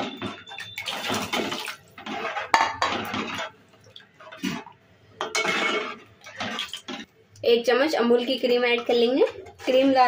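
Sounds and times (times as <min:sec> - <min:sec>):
ladle scraping a metal pot: 0:00.0 - 0:04.7, 0:05.3 - 0:06.6
water pouring into a pot: 0:00.2 - 0:02.0.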